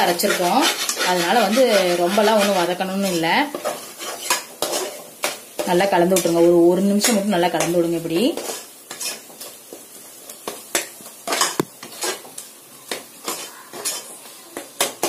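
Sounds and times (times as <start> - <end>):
metal spatula scraping a pot: 0.0 - 6.4, 8.3 - 9.6, 11.3 - 12.3, 13.2 - 15.0
paste sizzling in oil: 0.0 - 15.0.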